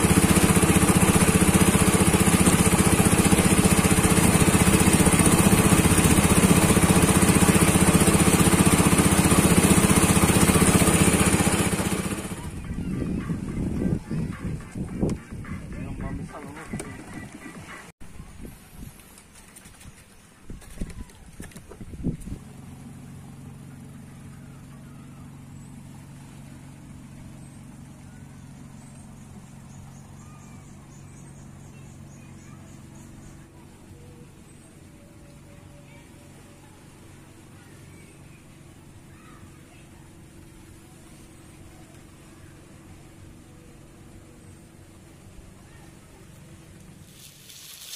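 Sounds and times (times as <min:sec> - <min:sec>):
boat engine pulsing: 0:00.0 - 0:17.9, 0:21.7 - 0:47.9
faint high chirps: 0:23.6 - 0:26.0, 0:27.3 - 0:36.9.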